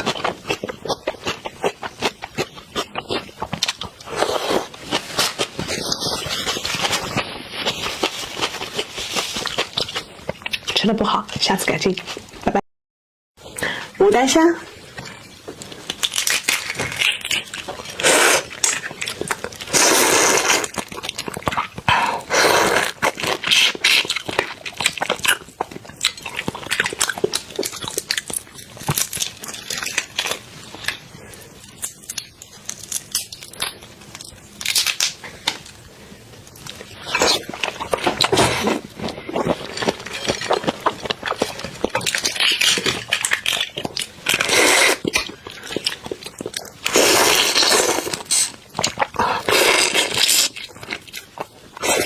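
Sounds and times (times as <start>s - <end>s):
prawn shells cracking and tearing: 15.8s - 21.8s, 22.8s - 31.0s, 31.7s - 35.7s, 37.0s - 52.0s.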